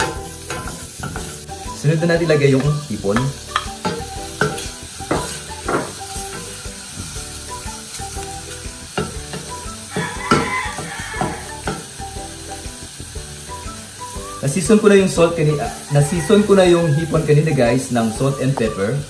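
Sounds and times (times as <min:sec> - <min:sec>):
food sizzling in oil: 0:00.0 - 0:19.0
wooden spoon knocking against pan: 0:02.6 - 0:06.5, 0:09.0 - 0:11.9.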